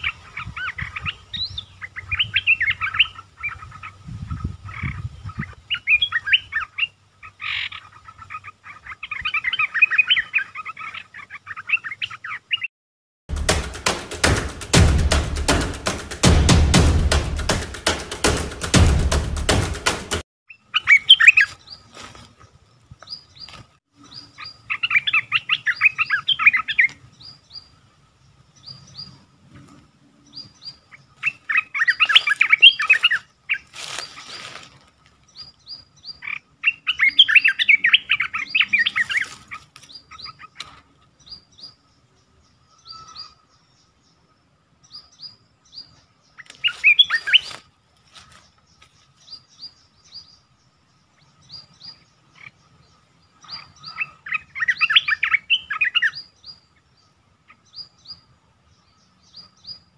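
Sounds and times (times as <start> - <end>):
bird high chirps: 0.0 - 12.7, 20.5 - 22.0, 23.0 - 27.8, 30.2 - 44.0, 44.8 - 59.9.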